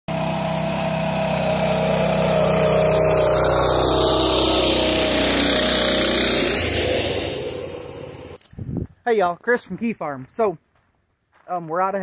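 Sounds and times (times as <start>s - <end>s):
tractor engine running under load: 0.1s - 8.4s.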